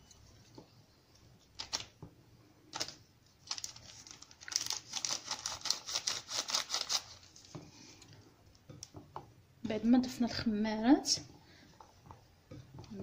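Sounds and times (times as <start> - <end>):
paper sachet crinkling: 2.7 - 7.5.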